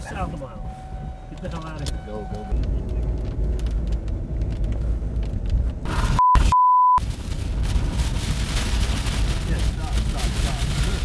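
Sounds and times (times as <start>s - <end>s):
wind and rain on vehicle: 0.0s - 6.2s, 7.0s - 11.0s
vehicle road and engine rumble: 0.0s - 11.0s
censor bleeps: 6.2s - 7.0s.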